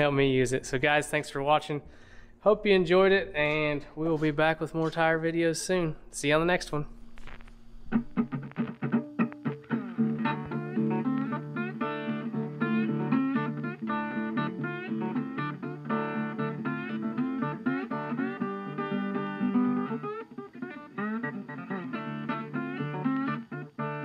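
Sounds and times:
acoustic guitar music: 7.1s - 24.0s.

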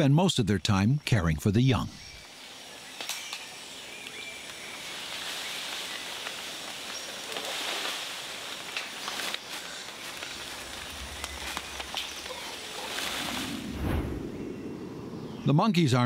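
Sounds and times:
faint chirping calls: 1.7s - 7.6s, 8.8s - 15.6s
steady high hiss: 2.0s - 15.7s
faint clicks and rustles: 4.0s - 13.5s
low rumble: 10.2s - 15.4s.

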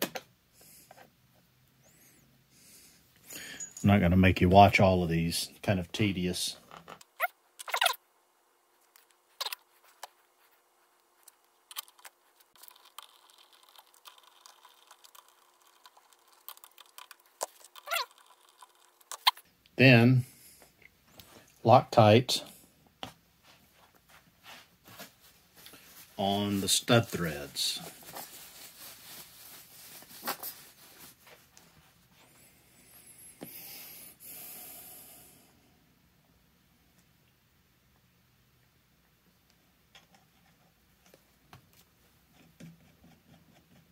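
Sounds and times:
soft rubbing hiss: 8.5s - 35.8s.

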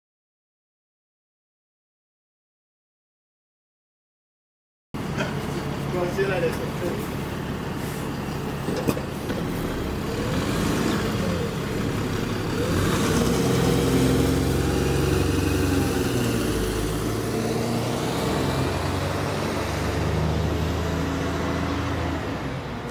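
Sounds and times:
bus diesel engine accelerating: 5.0s - 22.9s.

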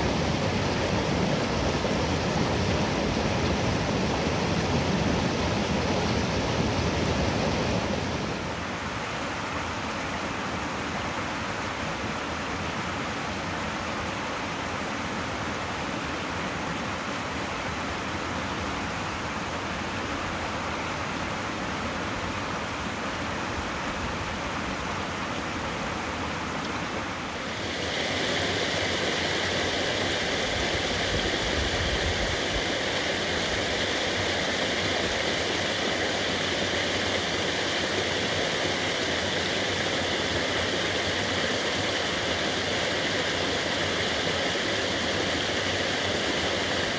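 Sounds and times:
small waterfall pouring: 0.0s - 12.2s, 26.6s - 46.9s
creek water rushing over rocks: 0.0s - 46.9s.

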